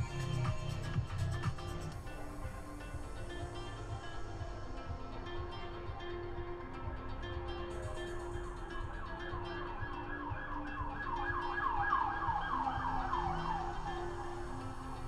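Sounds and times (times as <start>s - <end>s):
background music: 0.0s - 15.0s
siren-like wail: 9.0s - 15.0s.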